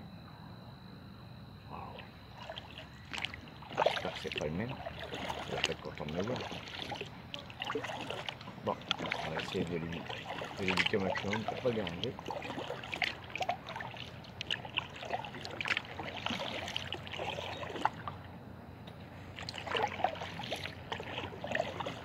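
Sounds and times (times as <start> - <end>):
paddle splashing in water: 2.4 - 18.3, 19.3 - 22.0.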